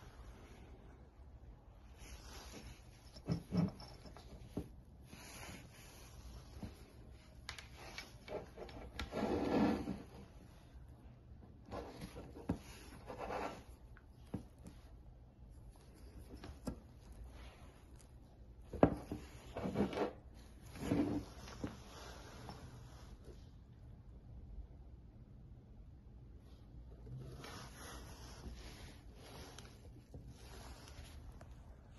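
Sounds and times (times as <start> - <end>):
rubbing and sliding of plastic: 1.9 - 10.6, 15.6 - 23.4, 27.0 - 31.7.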